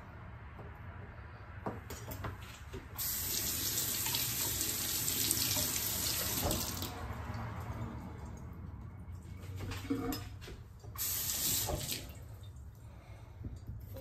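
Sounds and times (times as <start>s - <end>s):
tap water running into sink: 3.0s - 7.0s, 11.0s - 12.1s.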